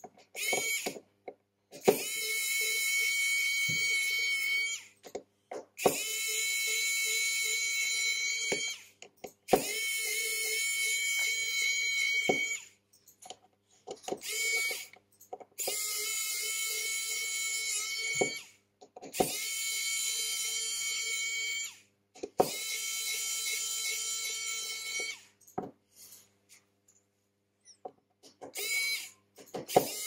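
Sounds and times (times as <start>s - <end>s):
electric screwdriver whirring: 0.3s - 1.0s, 1.8s - 4.9s, 5.8s - 8.8s, 9.5s - 12.7s, 14.1s - 15.0s, 15.6s - 21.8s, 22.4s - 25.3s, 28.5s - 30.0s.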